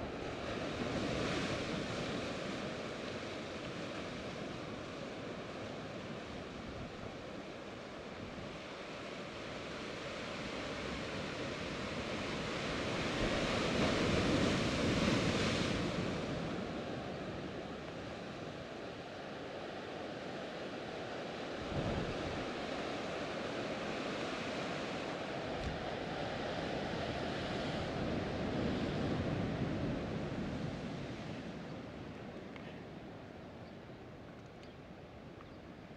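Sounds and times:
ocean surf on rocky shore: 0.0 - 35.9.

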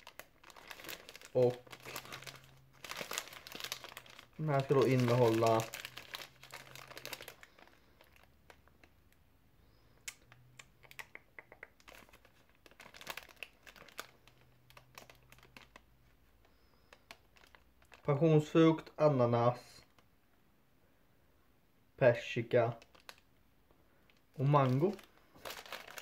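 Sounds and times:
plastic wrapper crinkling: 0.0 - 9.2, 11.7 - 18.9, 22.6 - 23.4, 24.0 - 26.0.

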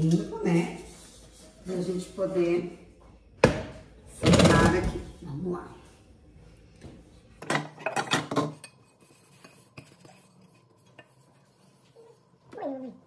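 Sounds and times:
metal pots clinking and knocking: 7.4 - 8.8.

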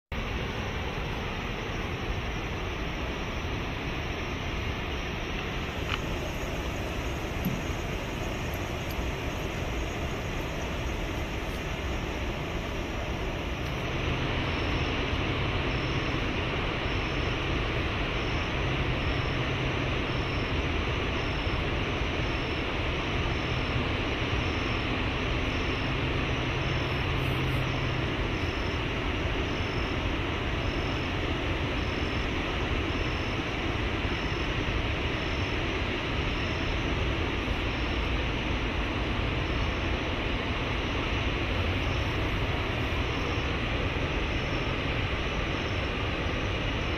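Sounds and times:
waterfall rushing: 0.2 - 16.8.

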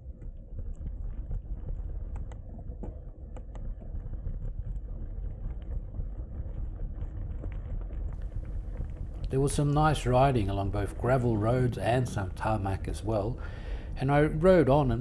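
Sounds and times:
bicycle tyres rolling on gravel: 3.2 - 15.0.

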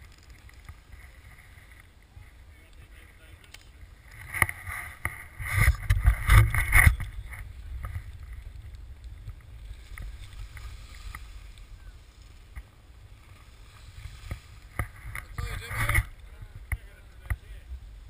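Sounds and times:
skis sliding over packed snow: 0.0 - 18.0
wind buffeting microphone: 3.8 - 18.0.

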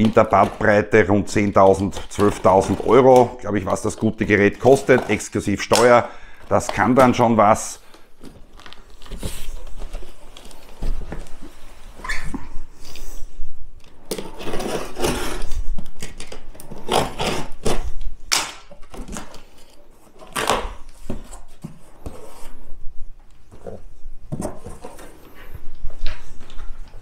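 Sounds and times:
cardboard flaps scraping: 8.2 - 13.4
packing tape ripping: 14.0 - 19.4, 20.2 - 21.0.

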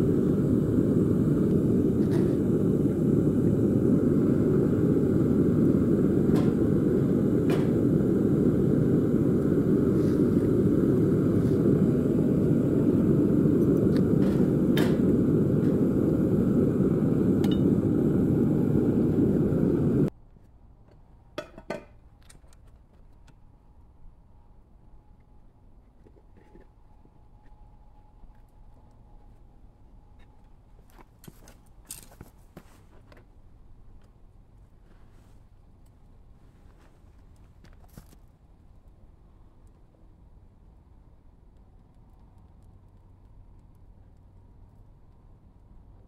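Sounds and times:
gas burner rushing: 0.0 - 20.1.

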